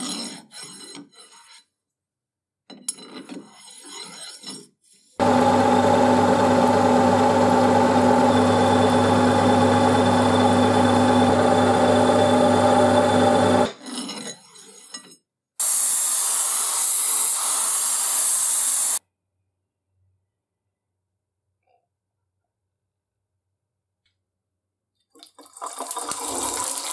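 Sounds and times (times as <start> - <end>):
power tool motor running: 5.2 - 13.7.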